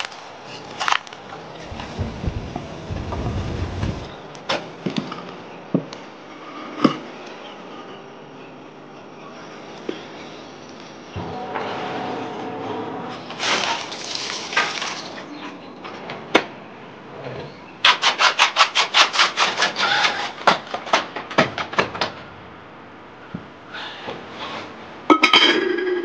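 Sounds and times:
liquid splashing into a jar: 0:13.5 - 0:15.2.

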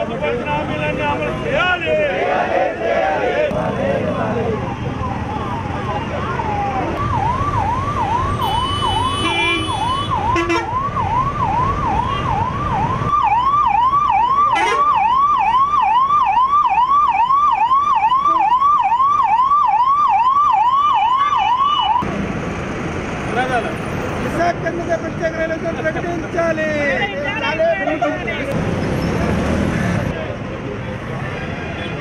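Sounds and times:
road traffic rumble: 0:00.0 - 0:32.0
ambulance siren: 0:04.2 - 0:22.0.

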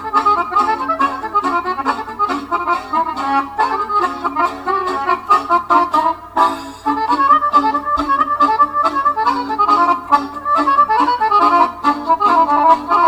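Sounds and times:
accordion music: 0:00.0 - 0:13.0.

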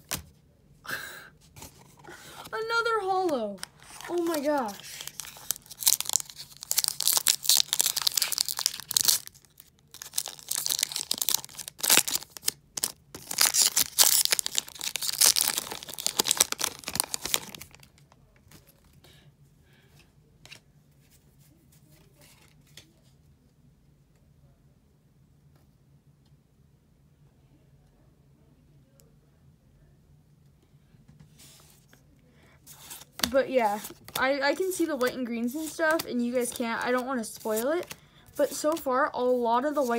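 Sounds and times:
foil wrapper tearing and crinkling: 0:03.8 - 0:18.0.

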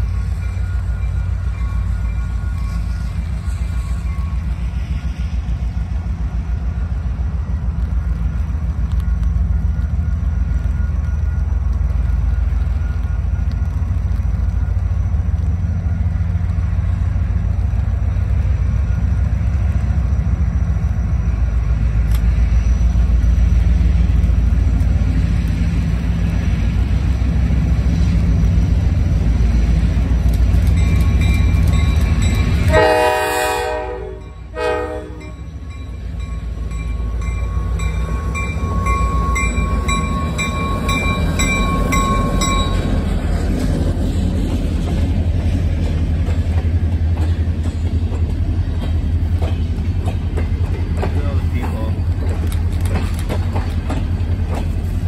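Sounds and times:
diesel locomotive rumbling: 0:00.0 - 0:55.0
train air horn blowing: 0:32.6 - 0:35.4.

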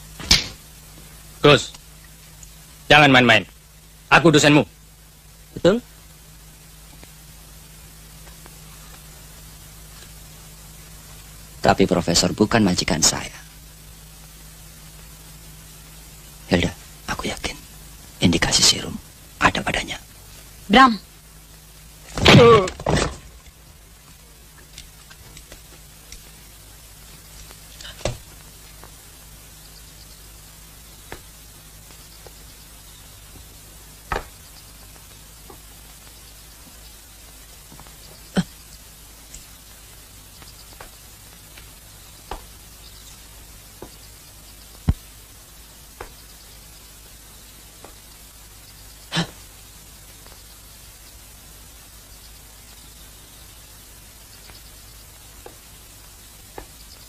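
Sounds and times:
old film soundtrack hum and hiss: 0:00.0 - 0:57.0.

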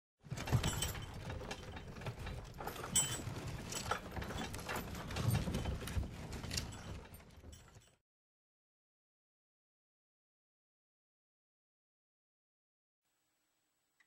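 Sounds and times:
mechanical rattling and clattering: 0:00.3 - 0:08.0.

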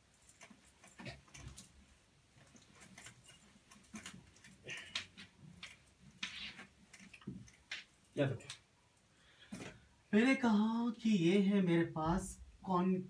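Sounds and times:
small clicks and knocks: 0:00.0 - 0:08.7.

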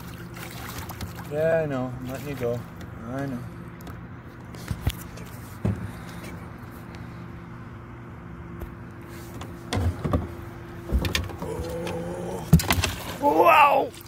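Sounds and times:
boat motor humming: 0:00.0 - 0:14.0
knocks in boat: 0:09.7 - 0:13.2.

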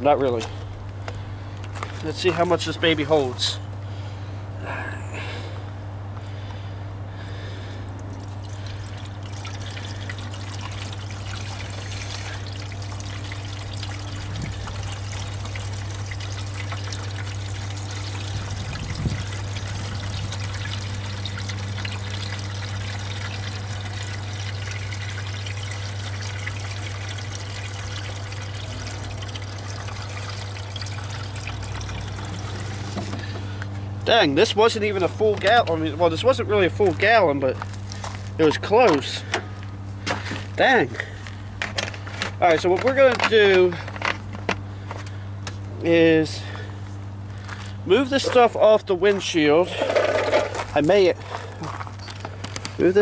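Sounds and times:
fluid pouring into plastic filler: 0:08.1 - 0:33.5.

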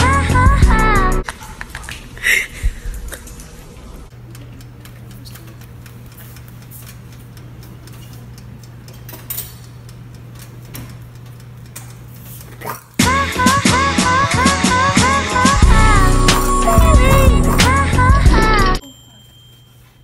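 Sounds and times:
steady low hum: 0:12.6 - 0:18.8
loud music: 0:13.0 - 0:18.8.

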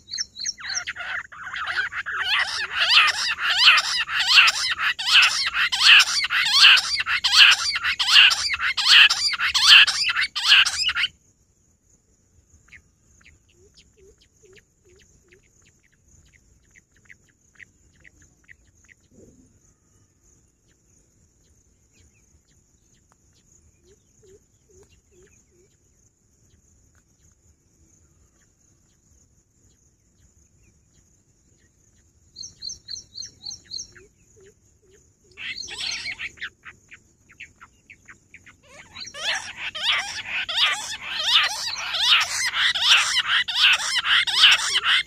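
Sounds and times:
quail whistled calls: 0:00.0 - 0:11.1, 0:32.4 - 0:45.0
faint bird chirps: 0:00.0 - 0:11.2, 0:12.3 - 0:45.0
high insect whine: 0:00.0 - 0:26.3, 0:26.9 - 0:45.0.

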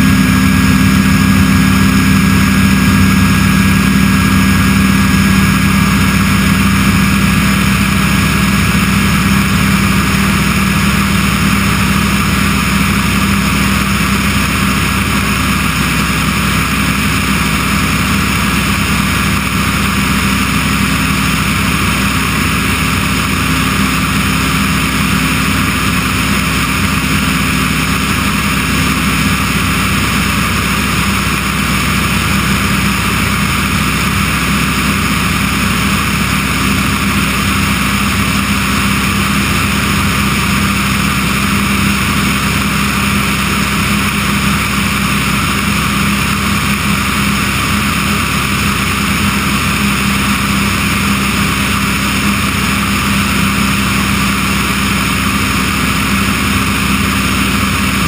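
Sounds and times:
aircraft engine and propeller droning: 0:00.0 - 0:58.0
rushing airflow: 0:00.0 - 0:58.0.

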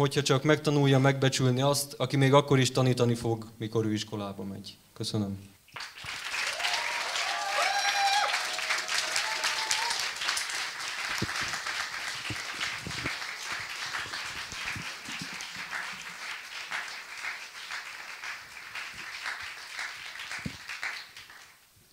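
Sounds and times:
audience clapping: 0:05.8 - 0:21.6.

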